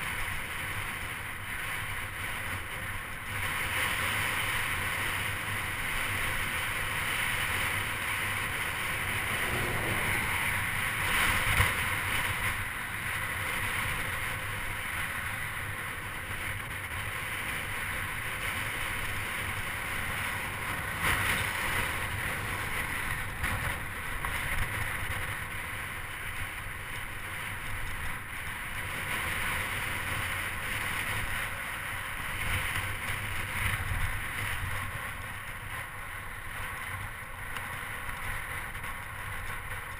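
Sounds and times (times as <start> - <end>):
wind buffeting microphone: 6.8 - 14.2.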